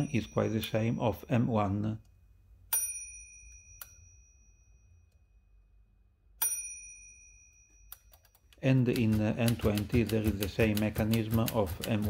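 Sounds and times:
typewriter bell ding: 0.0s - 1.3s, 2.7s - 4.5s, 6.4s - 12.0s.

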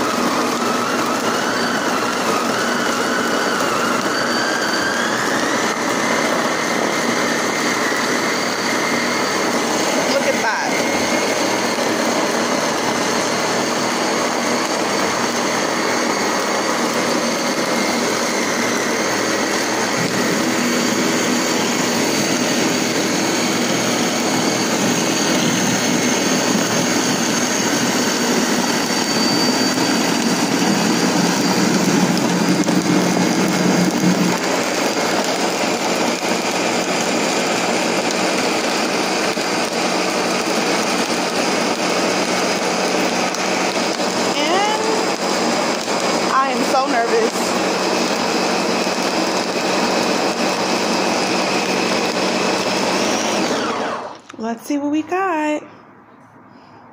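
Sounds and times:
blender whirring: 0.0s - 55.4s.

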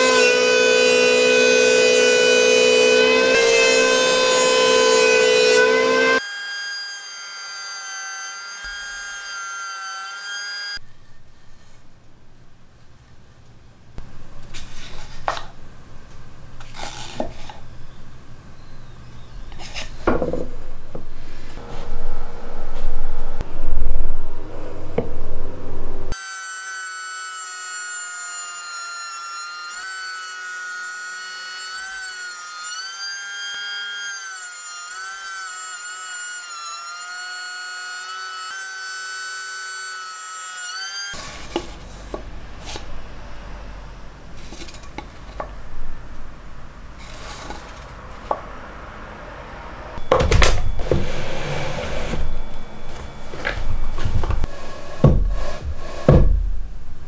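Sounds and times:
electric planer whining: 0.0s - 10.8s, 26.1s - 43.0s
wood knocking: 20.0s - 21.1s, 50.1s - 51.1s, 53.3s - 56.6s.

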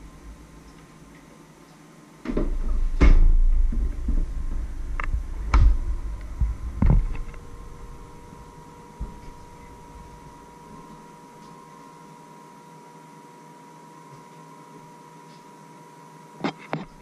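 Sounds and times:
knocks and clunks: 2.3s - 8.2s
camera handling rumble: 4.9s - 7.8s.

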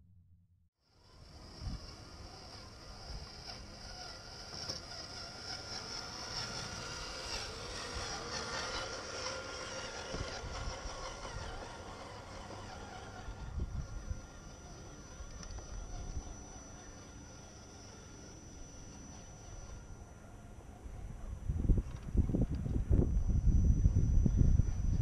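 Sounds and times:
electric motor and gear whine: 0.8s - 25.0s
wind rumble on microphone: 1.4s - 4.1s, 9.8s - 16.4s, 20.9s - 25.0s.

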